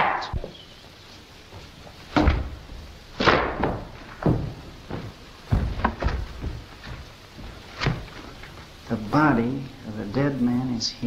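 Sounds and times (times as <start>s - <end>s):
heavy thuds and knocks: 2.0s - 8.2s.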